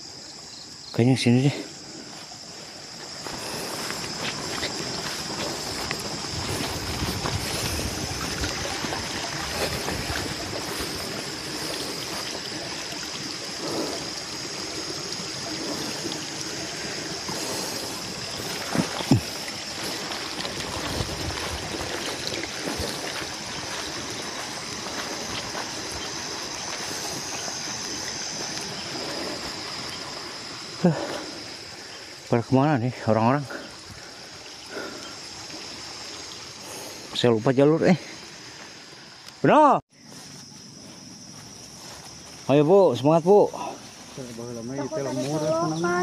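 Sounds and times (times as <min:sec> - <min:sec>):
water trickling and gurgling: 0:00.1 - 0:46.0.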